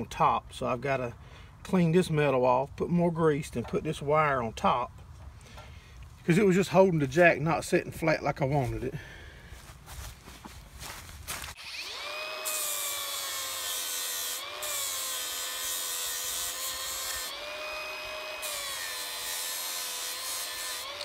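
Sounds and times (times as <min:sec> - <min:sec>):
electric grinder motor whine: 0:11.6 - 0:21.0.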